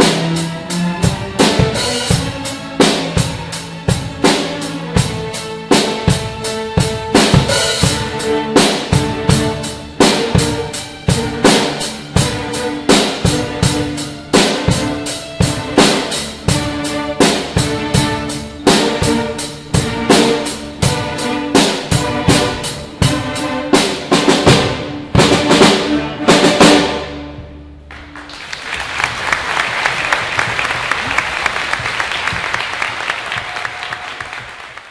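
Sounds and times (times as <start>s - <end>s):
steady drum strokes: 0.0s - 27.1s
orchestra with drum kit playing: 0.0s - 34.9s
audience applauding: 27.9s - 34.9s.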